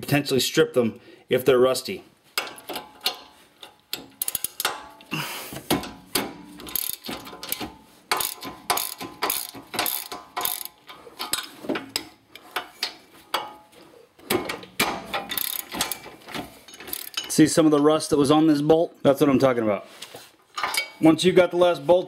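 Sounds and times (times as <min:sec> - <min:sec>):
ratchet wrench clicking: 0:02.4 - 0:04.8, 0:06.2 - 0:11.4, 0:15.1 - 0:16.0, 0:16.7 - 0:17.3.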